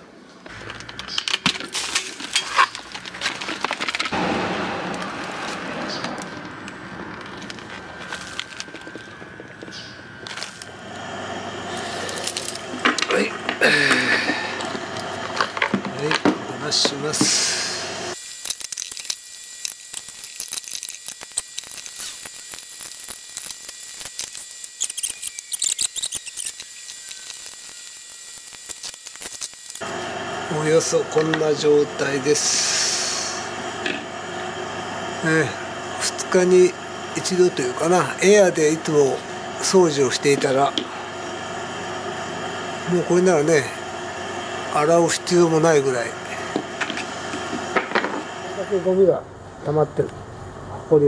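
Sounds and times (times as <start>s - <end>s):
plastic parts clicking and scraping: 0.5s - 4.2s.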